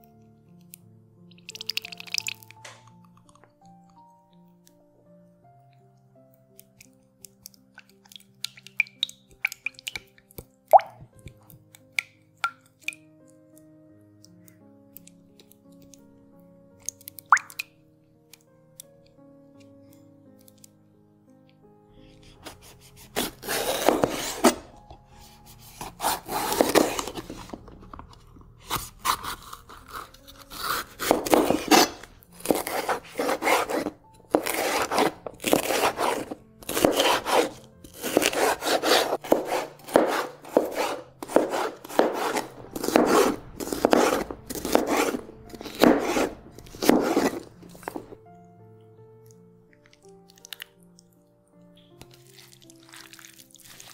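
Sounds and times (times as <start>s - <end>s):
knife slicing on cutting board: 22.2s - 24.8s, 25.4s - 27.6s, 28.7s - 48.2s.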